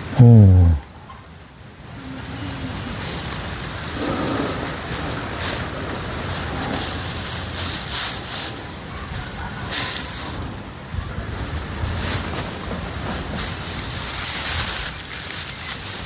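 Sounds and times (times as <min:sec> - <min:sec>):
dry straw rustling and crackling: 0:01.3 - 0:16.0.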